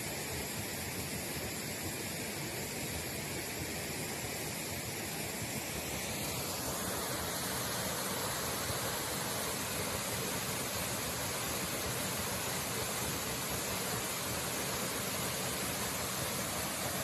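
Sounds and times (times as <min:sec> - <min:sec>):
waterfall rushing: 0:06.2 - 0:17.0.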